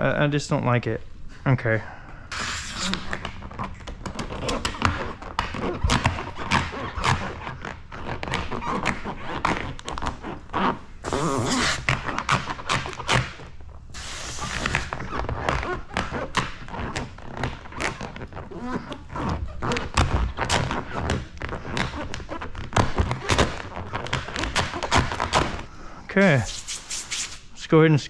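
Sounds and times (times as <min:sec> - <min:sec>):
hissing: 0:13.9 - 0:14.9, 0:26.2 - 0:27.5.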